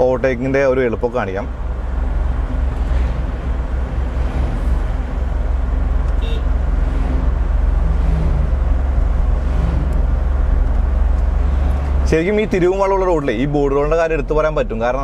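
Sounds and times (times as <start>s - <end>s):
diesel engine droning in cabin: 0.0s - 15.0s
horn toot: 6.1s - 6.6s.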